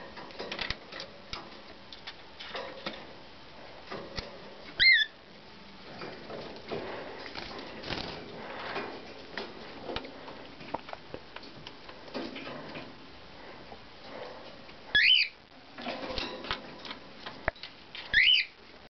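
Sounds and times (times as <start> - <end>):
cockatiel chirping: 4.8 - 5.1, 14.9 - 15.4, 18.1 - 18.5.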